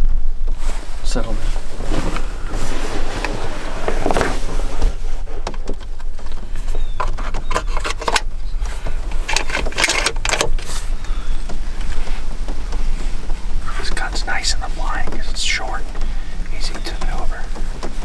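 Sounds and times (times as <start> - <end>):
steady low rumble: 0.0 - 18.0
clothing rustling: 0.5 - 18.0
gear clicking and knocking: 5.4 - 18.0.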